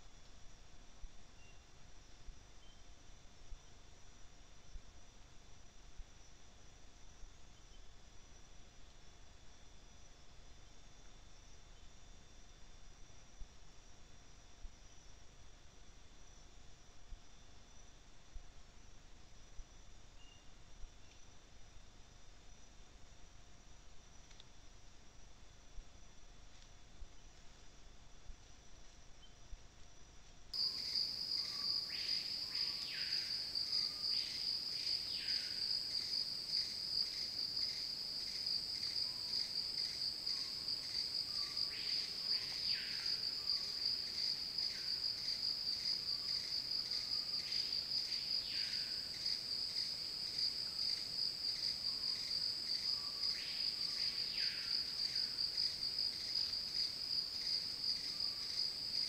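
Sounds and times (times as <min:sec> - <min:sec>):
insect chorus drone: 0:00.0 - 0:59.0.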